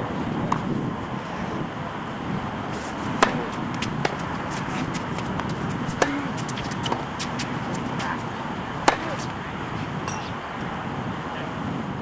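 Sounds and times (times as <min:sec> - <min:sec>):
steady outdoor hiss: 0:00.0 - 0:12.0
tennis racket hitting ball: 0:02.7 - 0:09.4.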